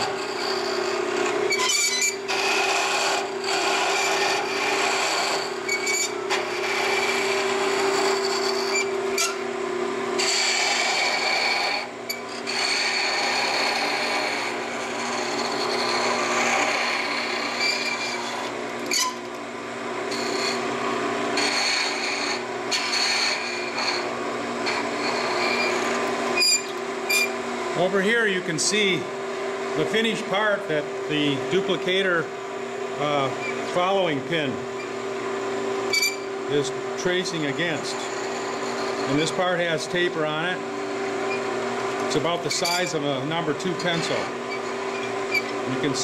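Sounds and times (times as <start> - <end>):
cutter rasping on wood: 0.0 - 9.4, 10.1 - 19.2, 20.1 - 27.4, 35.9 - 46.0
lathe humming: 0.0 - 46.0.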